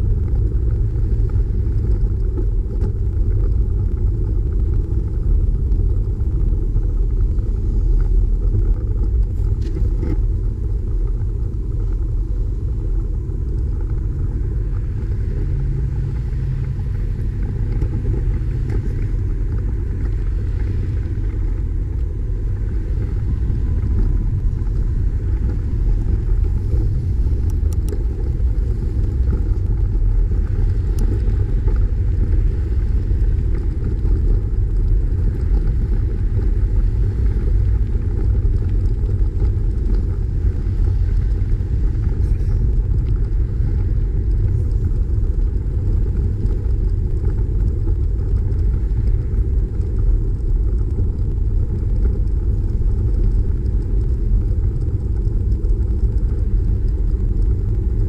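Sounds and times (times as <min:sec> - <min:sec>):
road noise: 0:00.0 - 0:58.0
wind buffeting microphone: 0:00.0 - 0:58.0.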